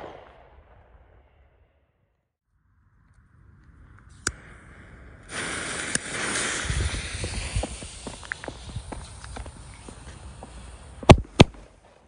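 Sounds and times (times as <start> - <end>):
firework fuse hissing and crackling: 4.0 - 12.0.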